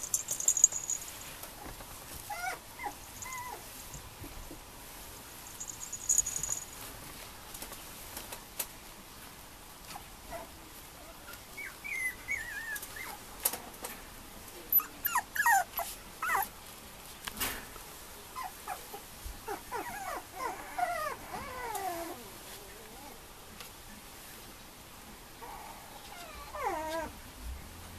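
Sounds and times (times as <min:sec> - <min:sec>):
puppy whimpering: 0:02.3 - 0:03.6, 0:11.6 - 0:13.2, 0:14.7 - 0:16.5, 0:18.4 - 0:23.2, 0:25.4 - 0:27.2.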